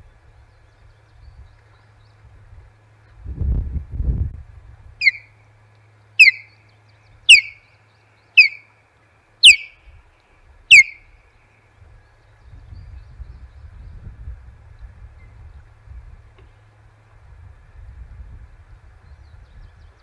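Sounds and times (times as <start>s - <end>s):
bird whistled calls: 5.0s - 5.3s, 6.2s - 6.6s, 7.3s - 7.7s, 8.4s - 8.7s, 9.4s - 9.8s, 10.7s - 11.1s.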